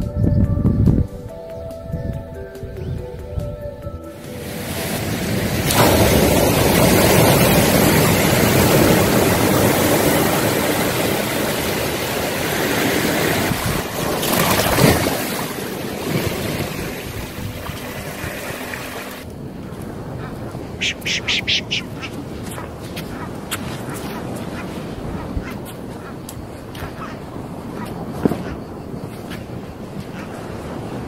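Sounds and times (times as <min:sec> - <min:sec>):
waves breaking on pebbly shore: 0:04.2 - 0:26.0.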